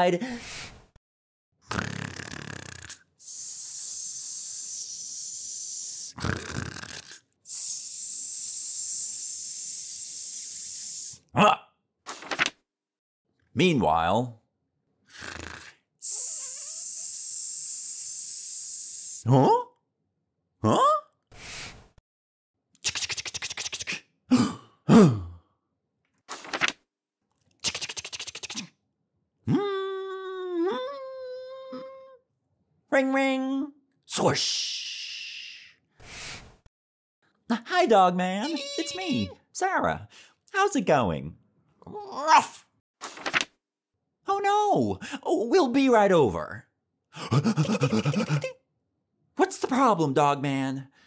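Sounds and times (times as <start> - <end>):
cartoon snoring: 1.6 - 11.2, 15.1 - 19.4, 47.2 - 48.5
mouth-made hiss: 2.1 - 6.9, 7.5 - 11.2, 15.3 - 19.2.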